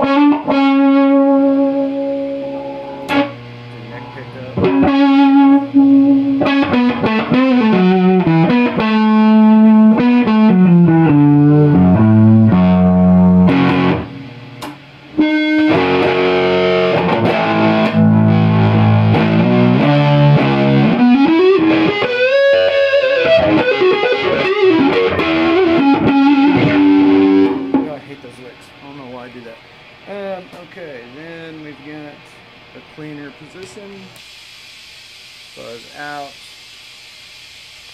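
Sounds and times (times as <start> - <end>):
distorted electric guitar: 0.0 - 28.2.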